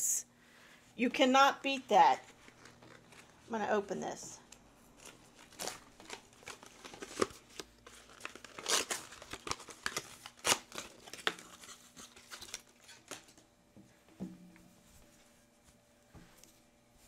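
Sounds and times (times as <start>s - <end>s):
packaging tearing and crinkling: 2.2s - 3.4s, 4.9s - 13.4s.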